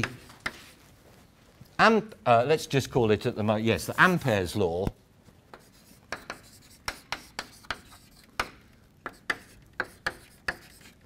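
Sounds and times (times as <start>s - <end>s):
chalk writing on chalkboard: 0.0s - 0.9s, 5.5s - 11.0s.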